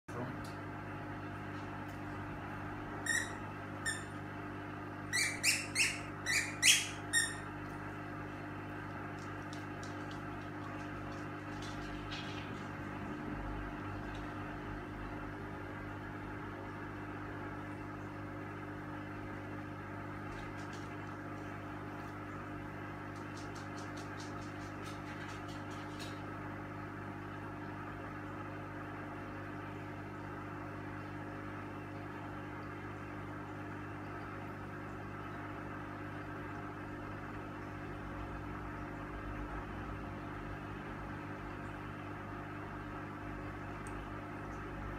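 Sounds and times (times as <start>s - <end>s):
squeaky dog toy squeaking: 3.0s - 4.1s, 5.1s - 7.4s.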